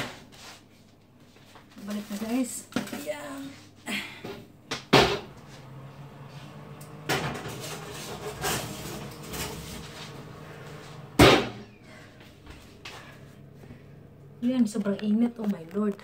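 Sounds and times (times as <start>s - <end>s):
oven door banging shut: 11.2s - 11.6s.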